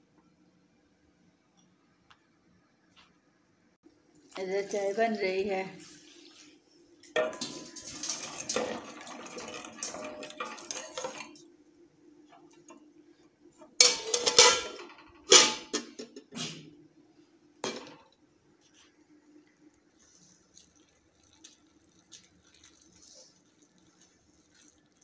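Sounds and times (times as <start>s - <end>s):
metal clanks of ladle and pot: 7.1s - 11.4s, 13.7s - 16.6s
ladle scraping metal pot: 7.2s - 11.4s, 13.6s - 16.1s.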